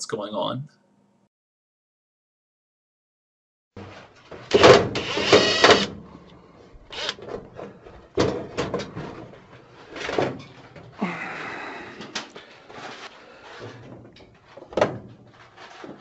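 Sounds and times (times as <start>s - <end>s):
cordless drill whirring: 4.6s - 5.9s, 6.9s - 7.2s.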